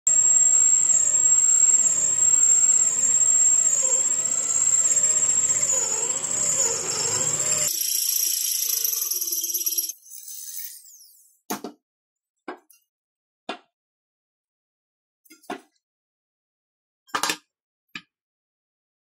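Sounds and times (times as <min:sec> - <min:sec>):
electric drill drilling metal: 0:00.1 - 0:09.9
thin high-pitched sound: 0:01.4 - 0:11.5.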